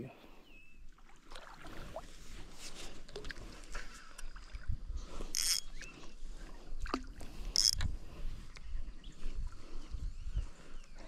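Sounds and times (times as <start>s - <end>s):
wind rumbling on microphone: 3.4s - 11.0s.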